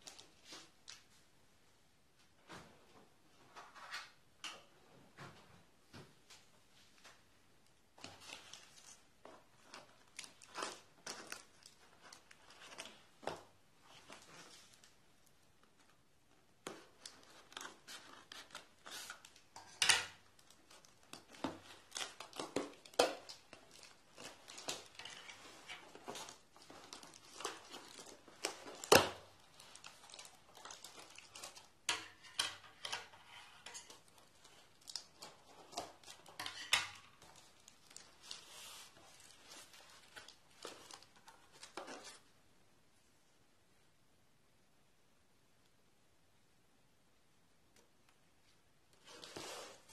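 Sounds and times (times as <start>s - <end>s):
cardboard rustling and tearing: 20.3s - 31.7s.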